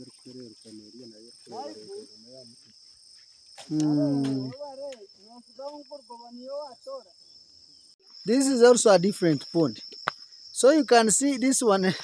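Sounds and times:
men talking: 0.0 - 2.7, 3.8 - 7.2, 8.2 - 9.9, 10.6 - 12.0
insects trilling: 0.0 - 12.0.

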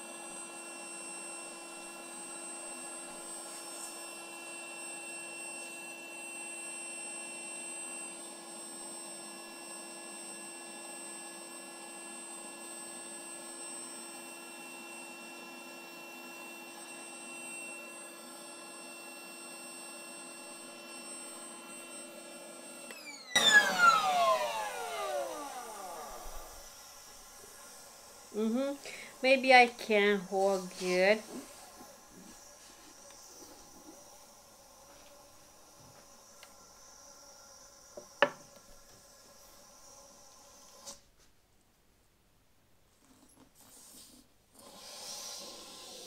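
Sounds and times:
air compressor whining: 20.6 - 29.2.

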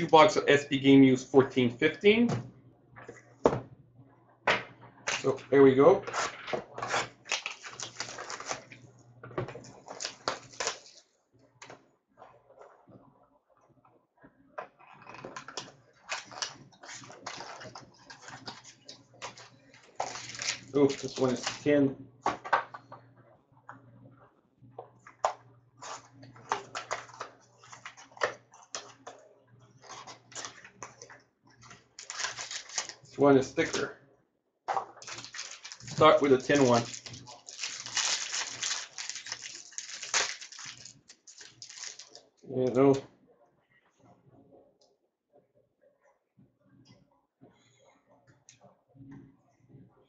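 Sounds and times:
rustling and crinkling of foil pack: 7.0 - 8.8, 9.7 - 11.0, 16.0 - 21.7, 31.6 - 33.2, 35.0 - 42.3.

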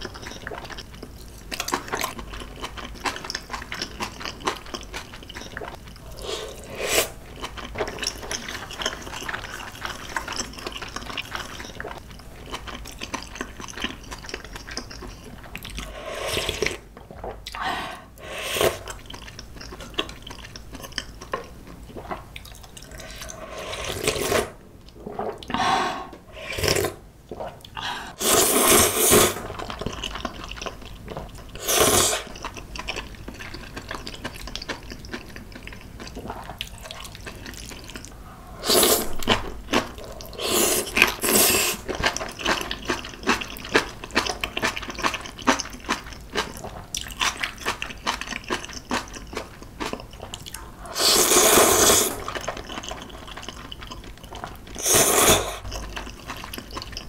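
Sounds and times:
wet chewing: 0.0 - 17.7, 18.6 - 25.6, 29.4 - 38.2, 39.1 - 50.7, 51.4 - 57.0
slurping noodles: 5.6 - 7.2, 15.8 - 16.8, 17.6 - 19.0, 22.8 - 27.5, 28.1 - 29.5, 31.6 - 32.3, 38.2 - 42.1, 50.8 - 53.0, 54.8 - 55.7.

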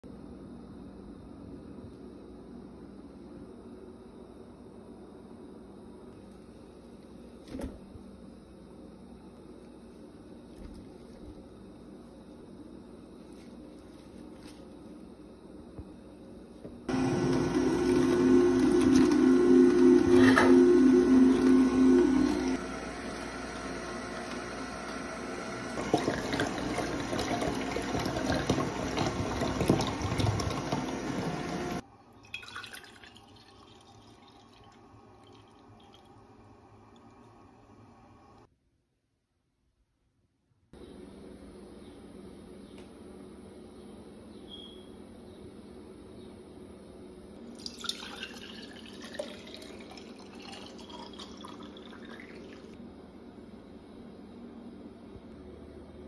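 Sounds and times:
juice pouring into pitcher: 16.9 - 37.2, 47.4 - 52.8
juice pouring into glass jar: 25.7 - 36.2, 47.5 - 52.8.

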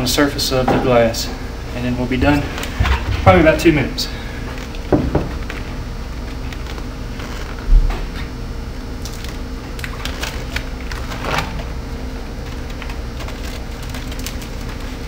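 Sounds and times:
paper liner peeling off film: 5.4 - 15.0.

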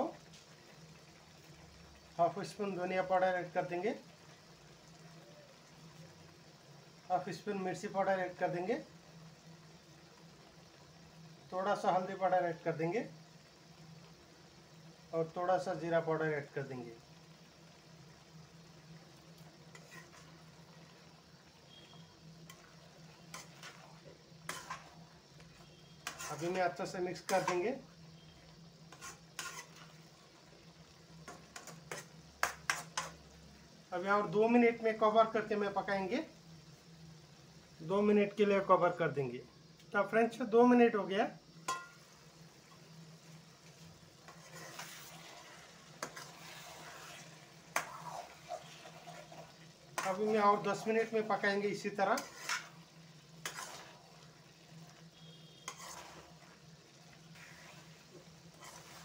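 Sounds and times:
faint sizzle: 0.0 - 59.0
metal spoon scraping a pan: 19.6 - 21.0, 21.7 - 30.1, 31.2 - 33.3, 41.6 - 42.1, 43.6 - 59.0
spoon knocking on pan: 41.7 - 42.0.

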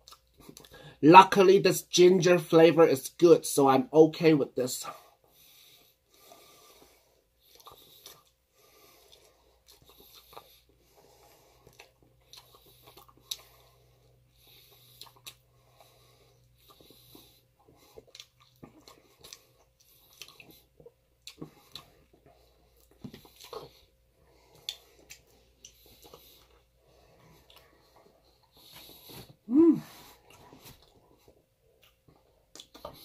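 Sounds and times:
chewing on chicken wing: 6.8 - 29.4, 30.2 - 33.0.

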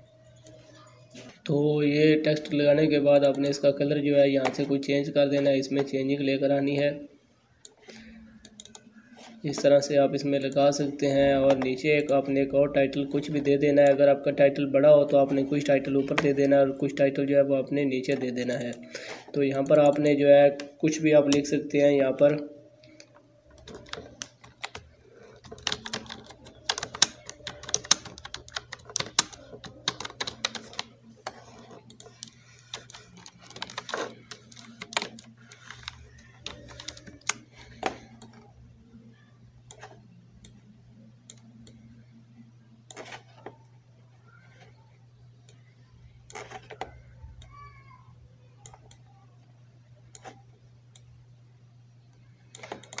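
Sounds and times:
typing on a computer keyboard: 8.4 - 8.9, 23.5 - 38.4, 52.5 - 53.0.

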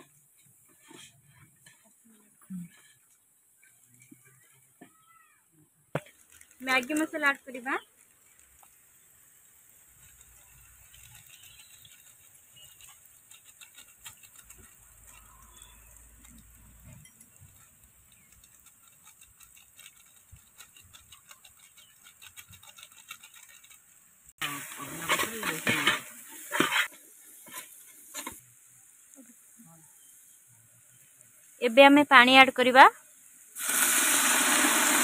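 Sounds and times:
metal ladle scraping a pot: 10.0 - 28.4.

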